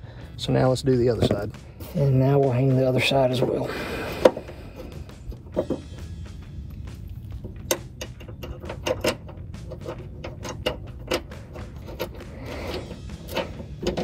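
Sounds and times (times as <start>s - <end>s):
metallic clicks of hand tools: 7.4s - 14.0s.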